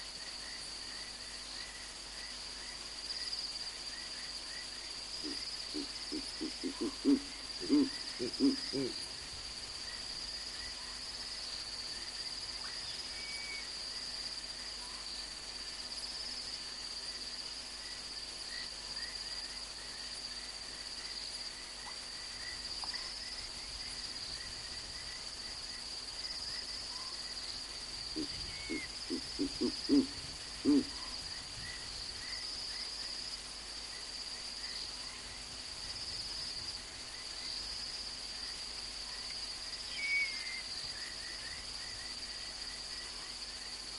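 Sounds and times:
night insects chorus: 0.0 - 43.9
owl deep hoots: 5.2 - 9.0, 28.1 - 31.2.

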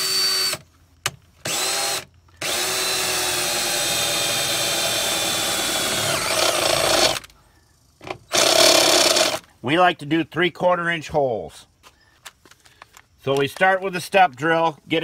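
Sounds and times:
cordless drill whining through metal: 0.0 - 0.6, 1.4 - 7.3, 8.3 - 9.5.

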